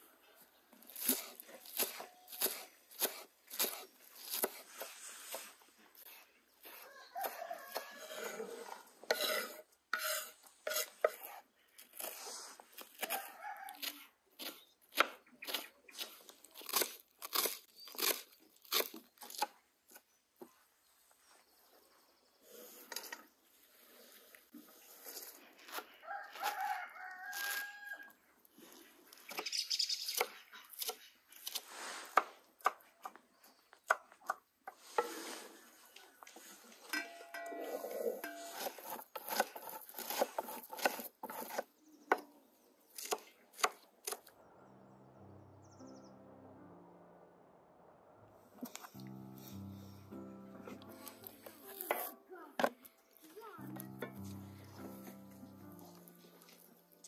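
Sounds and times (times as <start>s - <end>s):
rooster crowing: 6.8s - 8.5s, 13.1s - 13.9s, 26.0s - 28.2s.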